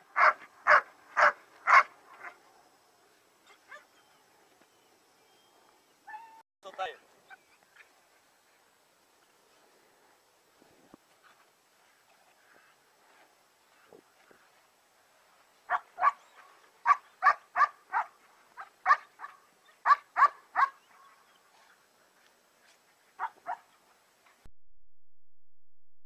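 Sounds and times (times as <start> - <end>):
puppy barking: 0.2 - 2.4, 15.7 - 20.9, 23.2 - 23.7.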